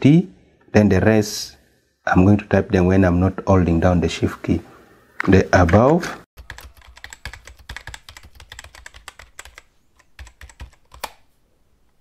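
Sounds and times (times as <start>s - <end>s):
computer keyboard typing: 5.7s - 11.2s.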